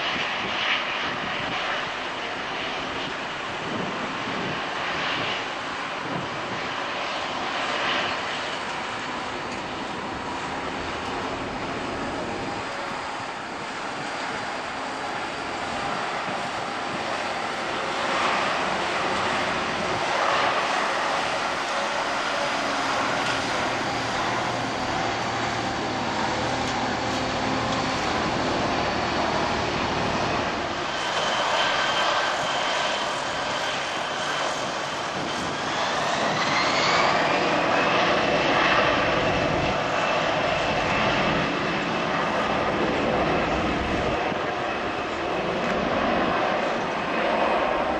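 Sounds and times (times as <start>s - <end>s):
jet engines with high whine: 0.0s - 47.9s.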